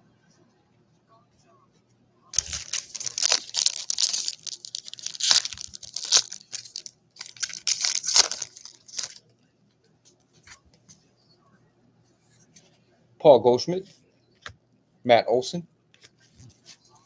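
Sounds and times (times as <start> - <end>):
foil wrapper tearing and crinkling: 2.4 - 9.2.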